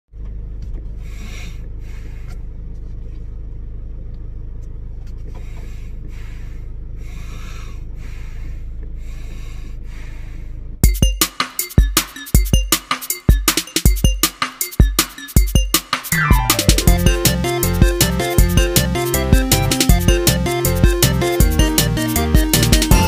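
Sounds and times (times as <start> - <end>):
car cabin engine rumble: 0.1 - 10.8
breaths through a face mask: 1.0 - 2.4, 5.3 - 10.6.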